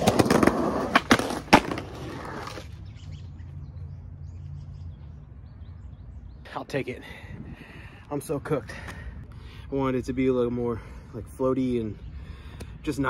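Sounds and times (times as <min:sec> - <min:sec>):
skateboard clacks: 0:00.0 - 0:02.6
skateboard wheels rolling on concrete: 0:00.0 - 0:03.9.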